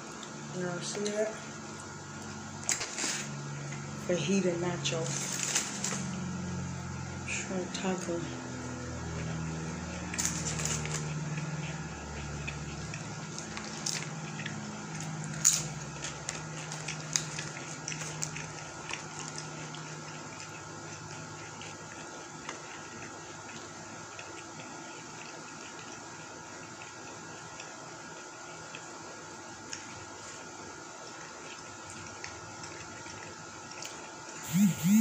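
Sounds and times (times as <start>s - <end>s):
wet chewing: 8.7s - 28.9s
tortilla chip crunches: 9.9s - 20.3s.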